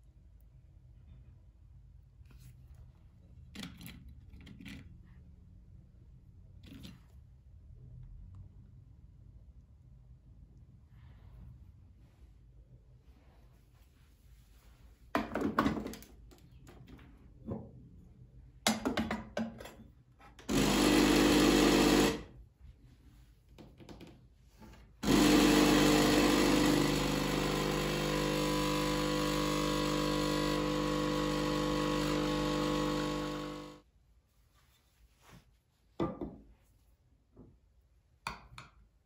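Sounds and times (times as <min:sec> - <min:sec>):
cup clicks and knocks: 0:18.7 - 0:19.8
espresso machine pump buzzing: 0:20.5 - 0:22.2, 0:25.0 - 0:33.8.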